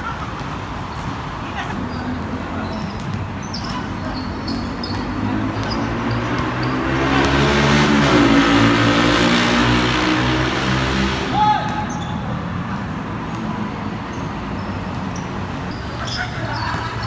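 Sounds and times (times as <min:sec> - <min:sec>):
sneakers squeaking on court: 0:00.0 - 0:07.4, 0:11.7 - 0:17.0
vehicle engine passing by: 0:05.1 - 0:11.4.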